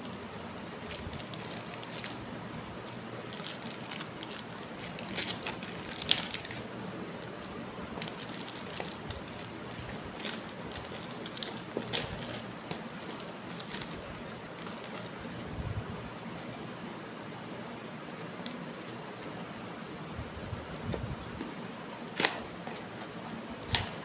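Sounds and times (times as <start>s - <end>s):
plastic packaging crinkling: 0.0s - 15.4s
scissors cutting plastic: 2.8s - 15.2s, 22.1s - 24.0s.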